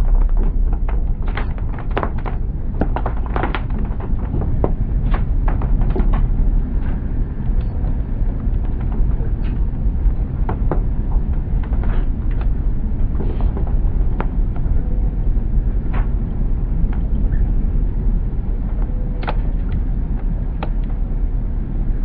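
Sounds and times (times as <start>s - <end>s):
sharp clicks and knocks: 0.0s - 15.0s, 18.6s - 21.0s.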